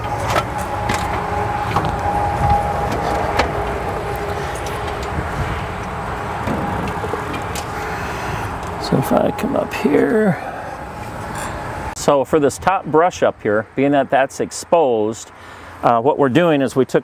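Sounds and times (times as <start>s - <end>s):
low mechanical rumble: 0.0s - 13.0s.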